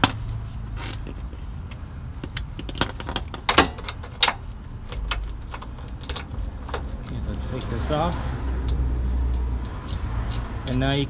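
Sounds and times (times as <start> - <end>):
metal hardware clinking and rattling: 0.0 - 8.2.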